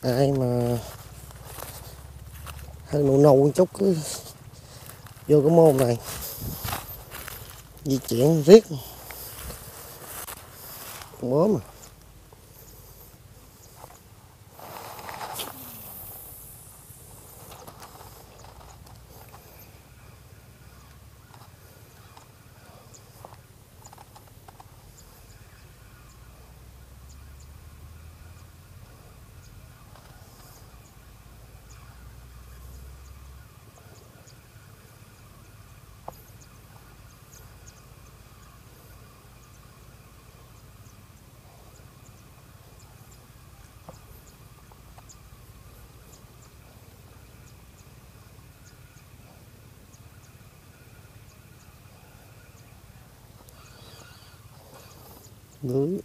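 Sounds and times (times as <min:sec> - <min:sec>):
faint background hum: 0:00.0 - 0:56.0
wind buffeting microphone: 0:06.0 - 0:07.6.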